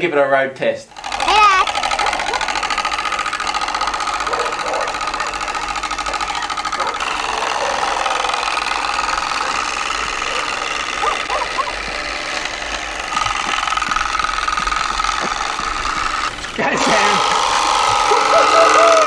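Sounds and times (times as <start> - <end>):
plastic strip clattering on bicycle spokes: 13.1 - 16.6.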